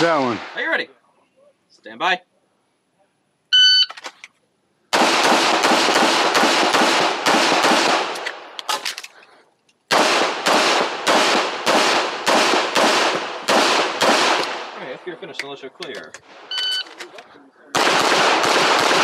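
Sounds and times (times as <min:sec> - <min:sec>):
pistol rapid fire: 0:04.9 - 0:08.5, 0:09.9 - 0:14.8, 0:17.8 - 0:19.0
shot timer beep: 0:16.5 - 0:16.8.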